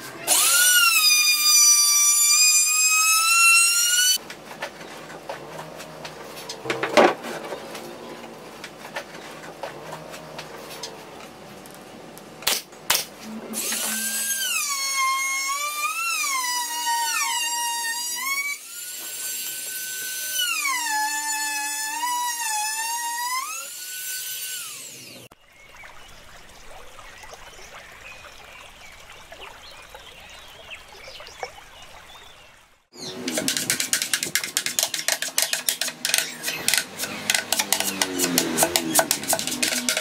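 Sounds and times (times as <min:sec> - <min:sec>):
power tool whining: 0:00.2 - 0:04.2, 0:13.3 - 0:25.3
pneumatic nailer shots: 0:12.4 - 0:21.3, 0:35.7 - 0:40.0.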